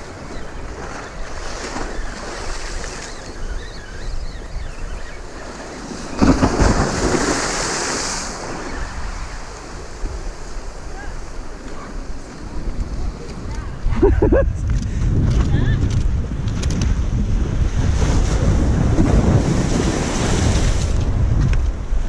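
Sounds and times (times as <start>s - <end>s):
wind buffeting microphone: 0.0s - 22.0s
sea waves washing against rocks: 5.2s - 13.9s
wave breaking and splashing: 5.6s - 13.5s.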